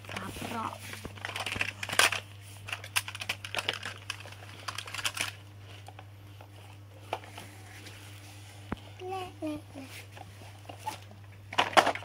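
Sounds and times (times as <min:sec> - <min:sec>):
plastic toy vehicles clattering: 0:01.2 - 0:05.4, 0:10.8 - 0:12.0.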